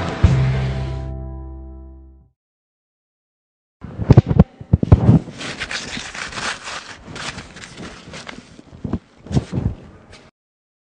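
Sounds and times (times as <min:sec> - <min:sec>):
rough rustling and scraping: 0:04.9 - 0:10.3.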